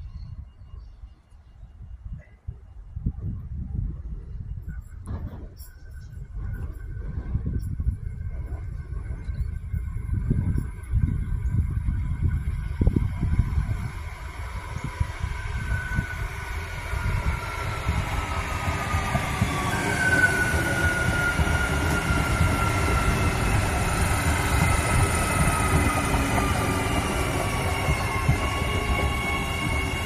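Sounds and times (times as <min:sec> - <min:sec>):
train wheels rumbling on track: 0:05.0 - 0:30.0.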